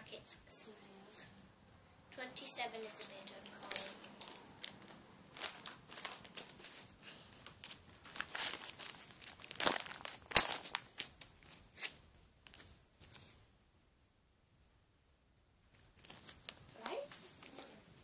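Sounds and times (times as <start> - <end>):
plastic binder pages crinkling: 2.9 - 13.4, 15.8 - 18.0.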